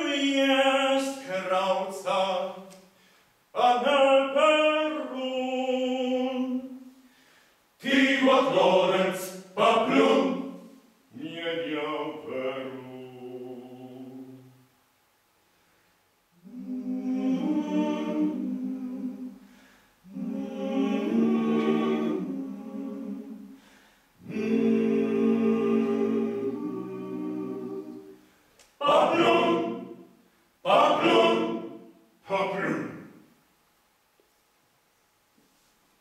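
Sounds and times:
male choir singing a cappella: 0.0 - 2.8, 3.6 - 6.9, 7.8 - 14.5, 16.4 - 23.6, 24.2 - 28.2, 28.8 - 33.2.

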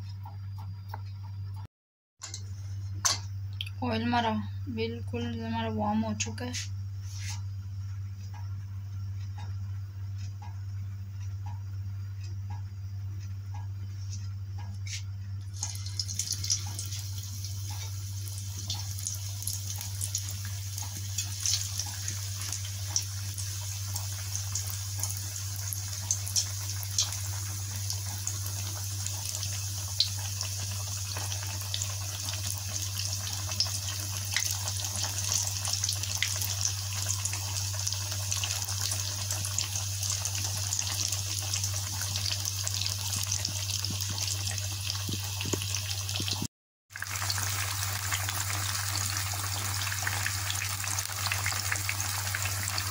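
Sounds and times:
patties deep-frying in oil: 0.0 - 52.9.

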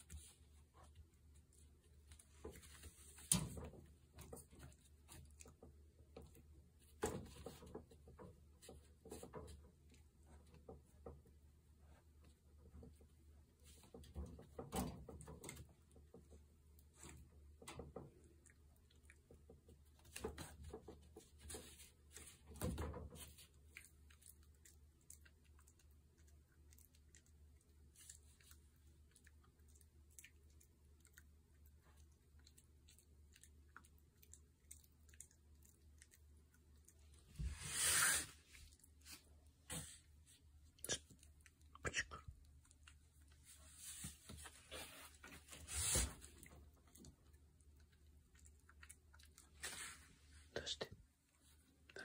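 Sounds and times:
puppy chewing clicks: 23.6 - 37.2.

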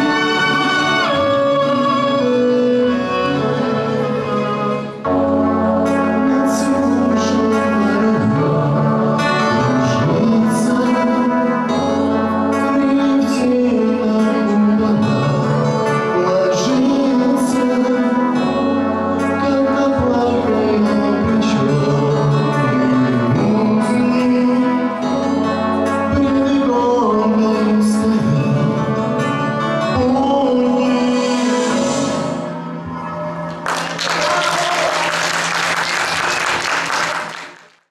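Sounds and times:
instrumental accompaniment: 0.0 - 37.8
man singing into microphone: 5.2 - 32.8.

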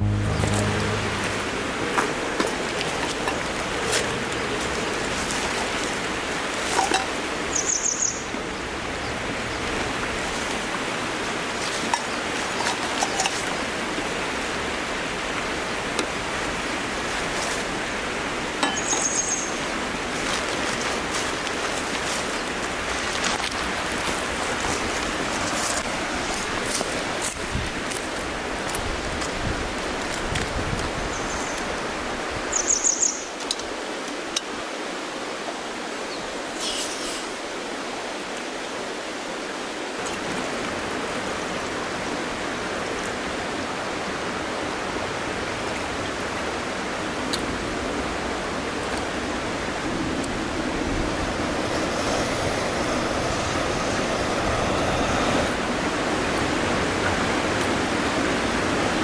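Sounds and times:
steady rushing noise: 0.0 - 6.4, 47.6 - 59.0.

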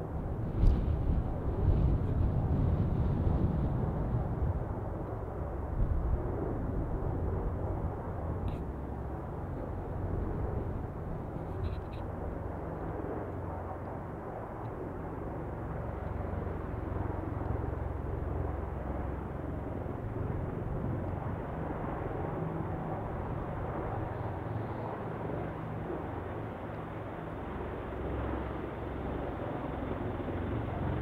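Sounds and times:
wind buffeting microphone: 0.0 - 14.1
helicopter rotor and engine: 0.0 - 31.0.

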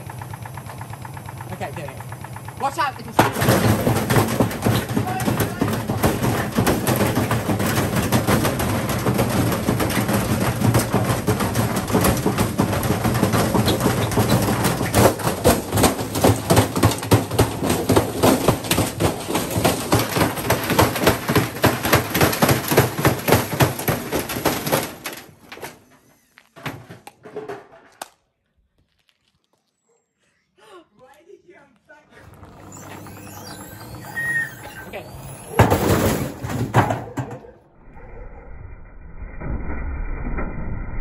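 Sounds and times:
washing machine banging and pounding: 0.0 - 25.7, 32.2 - 37.6.

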